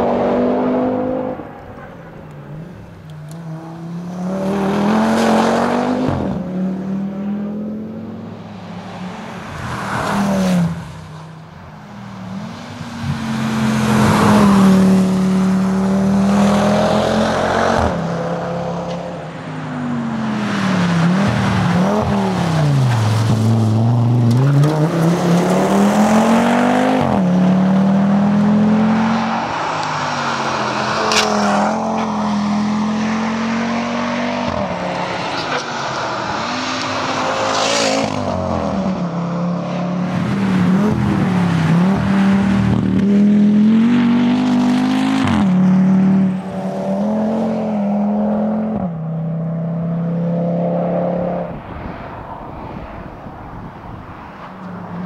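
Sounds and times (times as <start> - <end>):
rally car engine revving: 20.0 - 51.5.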